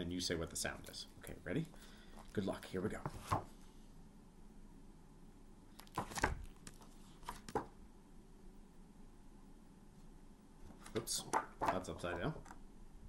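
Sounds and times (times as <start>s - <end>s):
paper cards rustling and slapping: 5.8s - 7.7s, 10.7s - 12.3s.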